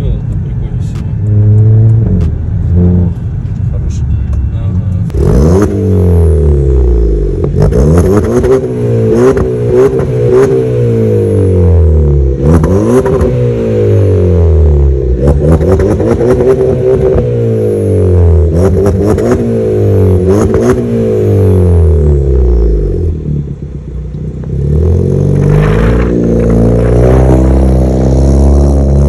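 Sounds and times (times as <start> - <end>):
car engine revving: 0.0 - 29.0
exhaust pops and crackles: 0.2 - 3.7, 25.3 - 28.0.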